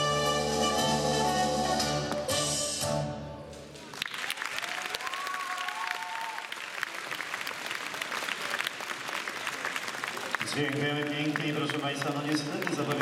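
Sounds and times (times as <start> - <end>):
audience applause: 3.7 - 13.0.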